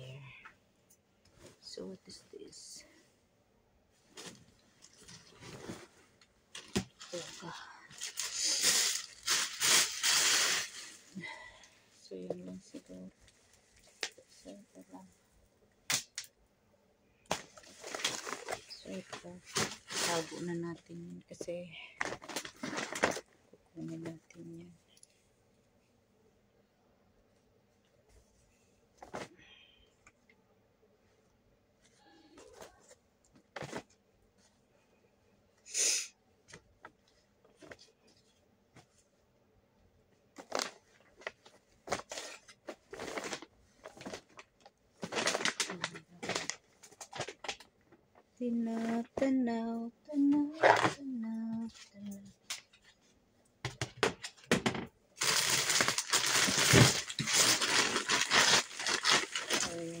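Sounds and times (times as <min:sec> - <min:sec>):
cloth rustling and folding: 0:04.0 - 0:11.2, 0:17.4 - 0:20.6, 0:40.3 - 0:49.2
plastic bag crinkling: 0:06.6 - 0:11.1, 0:17.6 - 0:20.5, 0:40.4 - 0:47.7, 0:55.2 - 1:00.0.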